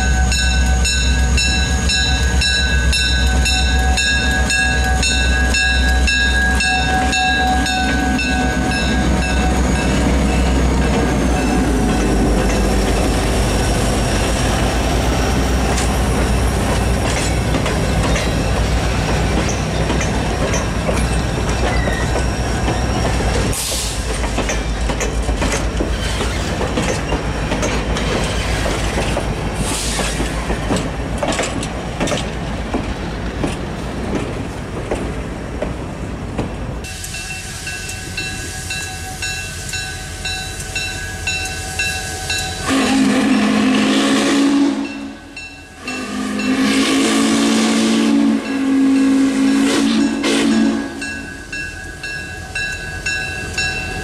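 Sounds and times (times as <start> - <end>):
train wheels clicking over rail joints: 0.4 - 42.7
steam locomotive whistle: 40.8 - 51.3.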